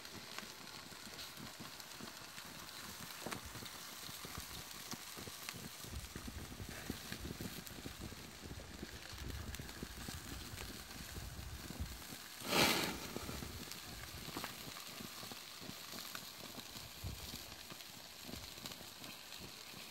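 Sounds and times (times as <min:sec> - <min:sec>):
food sizzling over charcoal: 0:00.0 - 0:19.9
small crackles: 0:00.0 - 0:19.9
brief rush of noise: 0:12.4 - 0:13.4.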